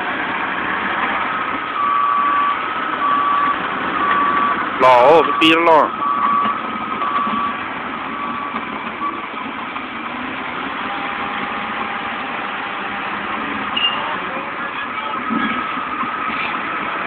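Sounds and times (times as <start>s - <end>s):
heavy diesel engines running: 0.0s - 17.0s
backup alarm beeping: 1.8s - 7.6s.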